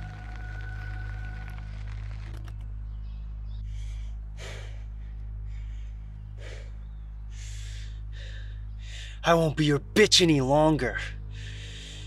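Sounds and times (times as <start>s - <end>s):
steady low hum: 0.0s - 12.0s
man breathing hard: 3.6s - 9.2s, 11.2s - 12.0s.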